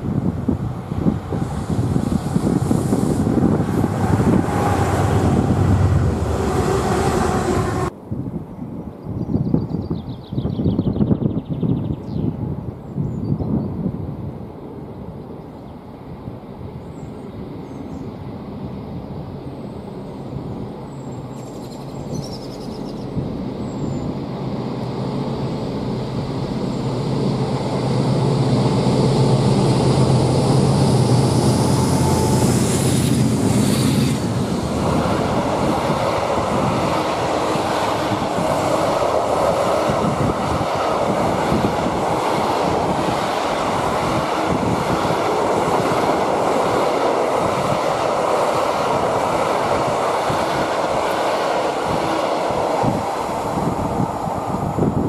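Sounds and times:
freight wagons rumbling over rails: 0.0s - 7.9s, 21.9s - 55.0s
diesel locomotive engine drone: 0.0s - 9.0s, 12.4s - 55.0s.

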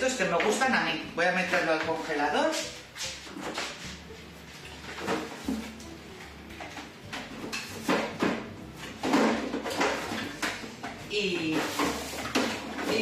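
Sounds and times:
freezer door opening and shutting: 3.2s - 13.0s.

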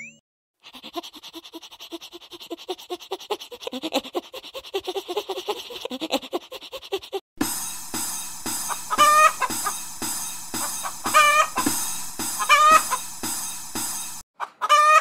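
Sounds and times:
wings flapping fast: 8.0s - 14.2s
squeaky pitched notes: 8.7s - 9.8s.

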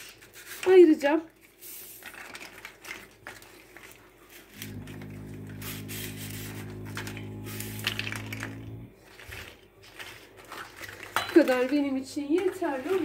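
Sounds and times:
dried shells crackling: 0.0s - 13.0s
steady low hum: 4.5s - 9.2s.

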